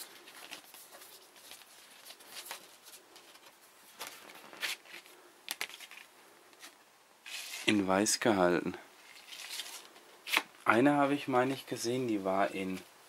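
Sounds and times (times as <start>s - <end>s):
paper and card rustling: 0.0s - 7.8s, 9.0s - 12.9s.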